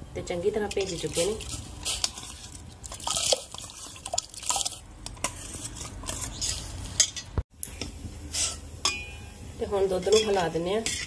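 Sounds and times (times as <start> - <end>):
steel ladle scraping bowl: 0.7 - 7.3.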